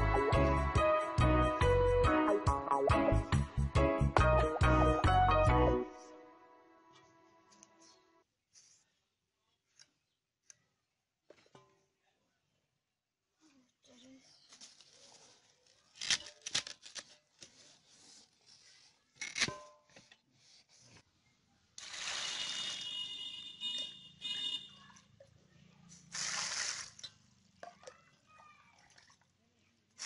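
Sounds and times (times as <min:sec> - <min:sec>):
water pouring into metal bowl: 0:21.8 - 0:23.0, 0:26.1 - 0:29.4.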